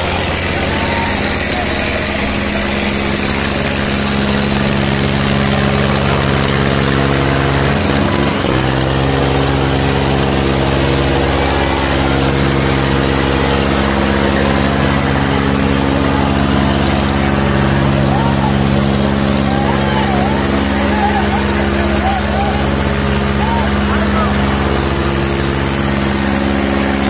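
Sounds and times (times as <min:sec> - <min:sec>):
tractor diesel engines under load: 0:00.0 - 0:27.0.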